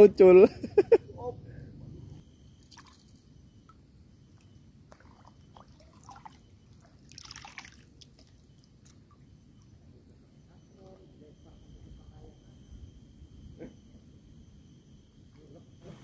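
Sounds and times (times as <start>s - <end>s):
water trickles and splashes: 4.9s - 9.2s.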